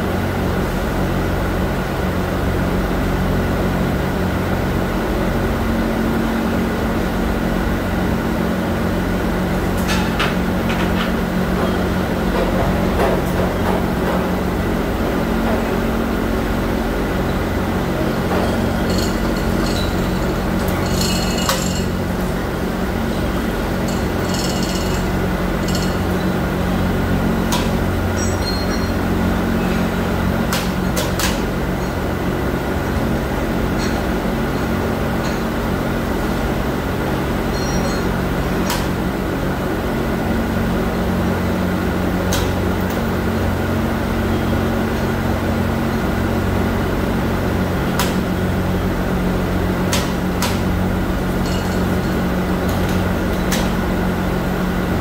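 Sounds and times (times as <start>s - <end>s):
machinery hum: 0.0s - 55.0s
metallic chain clinks: 18.5s - 21.9s.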